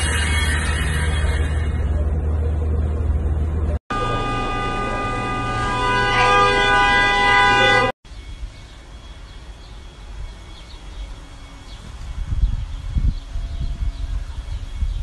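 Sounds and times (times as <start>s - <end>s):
loud multi-pitch horn tone: 0.0s - 2.0s, 3.9s - 8.0s.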